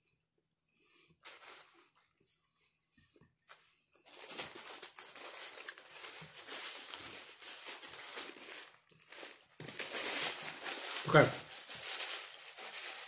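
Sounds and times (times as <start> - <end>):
paper wrapper crinkling: 1.2 - 2.1, 3.5 - 13.0.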